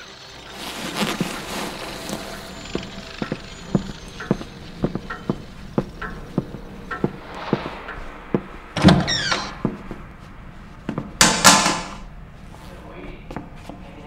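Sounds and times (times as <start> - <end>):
footsteps walking: 0.5 - 14.0
short loud rush of noise: 7.2 - 11.2
door opening with squeak: 8.8 - 9.6.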